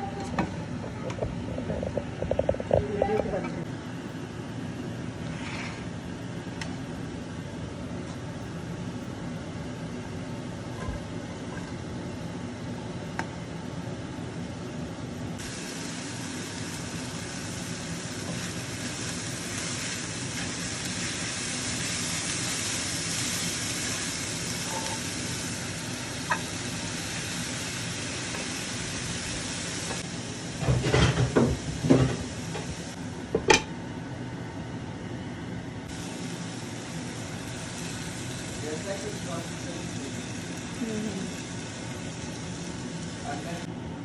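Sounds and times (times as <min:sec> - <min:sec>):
onions sizzling in oil: 0:15.4 - 0:33.6, 0:35.9 - 0:43.7.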